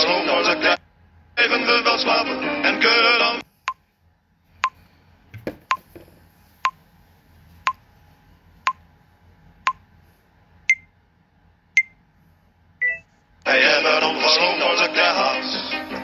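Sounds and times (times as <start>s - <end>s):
countdown timer beeping: 12.8s - 13.0s.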